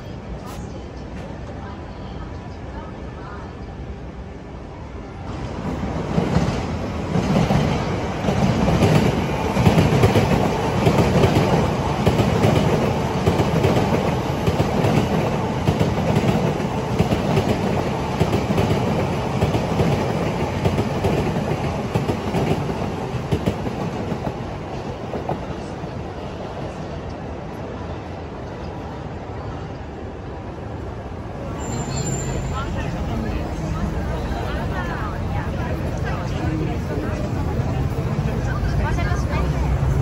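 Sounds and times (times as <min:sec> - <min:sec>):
train wheels rumbling on rails: 0:05.2 - 0:40.0
clickety-clack over rail joints: 0:06.0 - 0:25.7.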